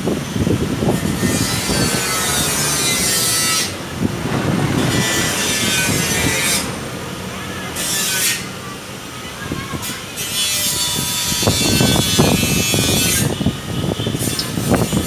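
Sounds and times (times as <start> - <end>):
scraping rasping of wiring: 0.8 - 8.6, 9.8 - 13.4.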